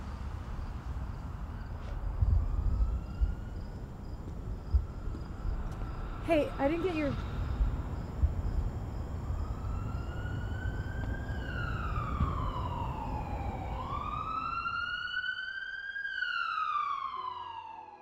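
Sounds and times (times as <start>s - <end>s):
low outdoor rumble: 0.0s - 14.6s
ambulance siren wailing: 2.2s - 5.8s, 9.2s - 18.0s.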